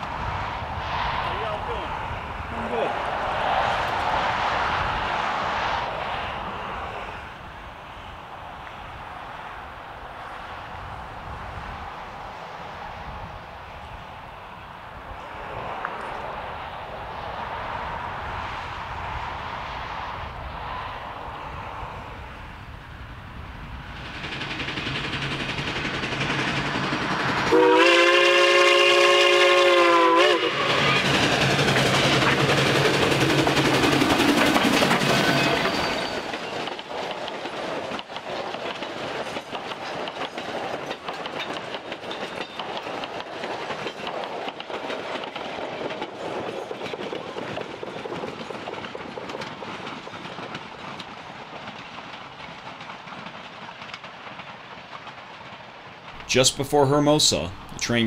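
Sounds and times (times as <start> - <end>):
steam train passing: 0.0 - 58.0
wheels clicking over rails: 24.0 - 27.5, 30.6 - 56.4
steam whistle blast: 27.5 - 30.8.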